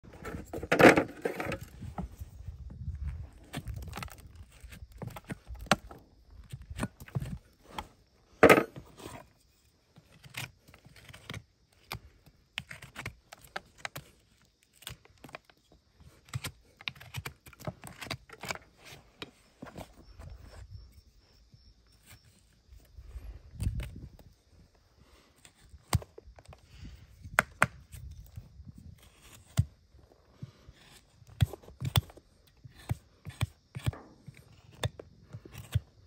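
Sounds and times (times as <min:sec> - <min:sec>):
hoof knife scraping hoof: 0:00.1 - 0:02.2, 0:27.8 - 0:36.0.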